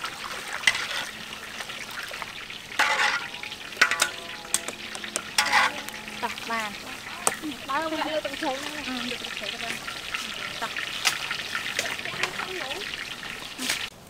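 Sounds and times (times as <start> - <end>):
strainer scraping and clattering: 0.0 - 8.9
liquid bubbling and hissing: 0.0 - 14.0.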